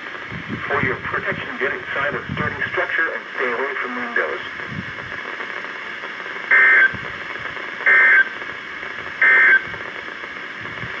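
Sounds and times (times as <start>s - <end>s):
steady radio hiss: 0.0s - 11.0s
two-tone digital data bursts: 6.5s - 7.0s, 7.8s - 8.4s, 9.2s - 9.7s.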